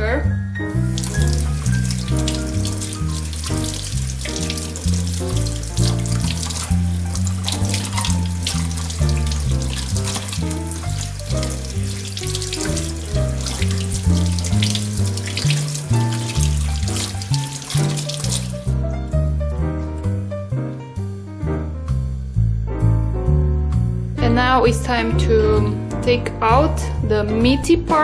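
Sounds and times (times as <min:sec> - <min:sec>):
background music with bass: 0:00.0 - 0:28.0
tap water splashing into sink: 0:00.7 - 0:18.8.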